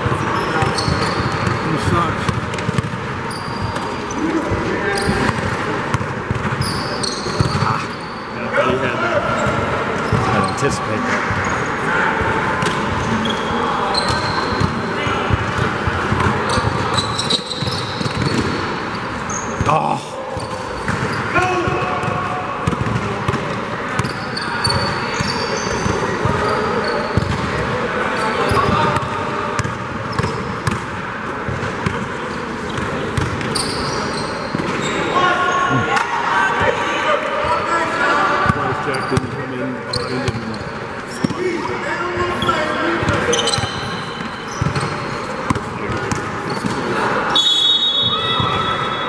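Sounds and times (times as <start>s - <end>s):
sneaker squeaks: 0.0s - 11.9s, 12.6s - 23.0s, 23.8s - 30.8s, 31.5s - 36.0s, 38.4s - 49.0s
basketball bouncing: 2.2s - 3.0s, 5.1s - 6.7s, 20.4s - 24.2s, 27.2s - 27.6s, 28.6s - 30.9s, 32.7s - 33.5s
crowd murmur: 21.7s - 42.2s.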